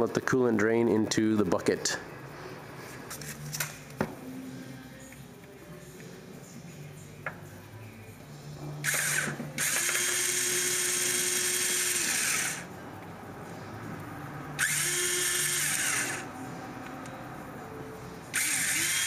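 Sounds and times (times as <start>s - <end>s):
power ratchet whining: 8.8s - 12.7s, 14.6s - 16.3s, 18.3s - 19.0s.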